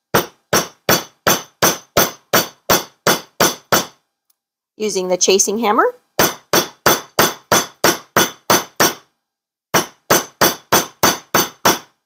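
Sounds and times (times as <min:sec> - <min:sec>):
hammer tapping wire on metal: 0:00.1 - 0:04.0, 0:06.2 - 0:09.0, 0:09.8 - 0:12.0.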